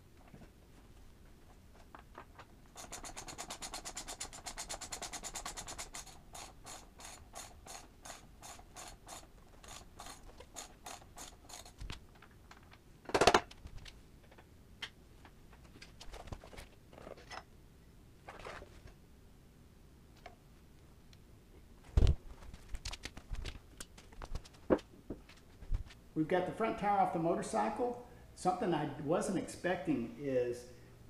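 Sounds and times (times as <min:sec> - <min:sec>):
ratchet wrench clicking: 0:02.8 - 0:11.9.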